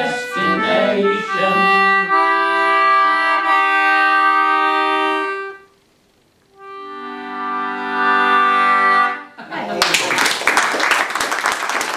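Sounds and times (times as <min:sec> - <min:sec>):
concertina chords: 0:00.0 - 0:05.9, 0:06.5 - 0:09.4.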